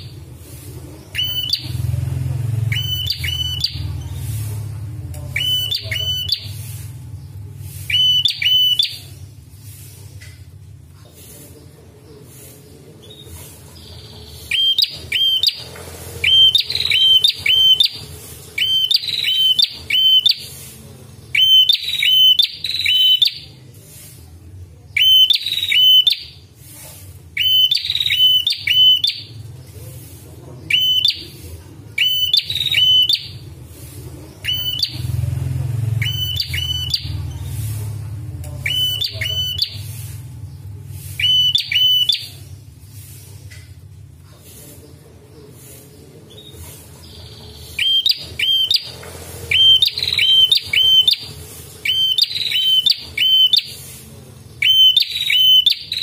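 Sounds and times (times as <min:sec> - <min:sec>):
bird calling sharp notes: 0:01.1 - 0:04.4, 0:05.3 - 0:06.8, 0:07.7 - 0:09.2, 0:13.8 - 0:20.6, 0:21.3 - 0:23.5, 0:25.0 - 0:26.4, 0:27.4 - 0:29.4, 0:32.0 - 0:33.5, 0:34.4 - 0:35.2, 0:35.9 - 0:37.3, 0:38.6 - 0:40.2, 0:41.0 - 0:42.5, 0:47.0 - 0:53.9, 0:54.6 - 0:56.0.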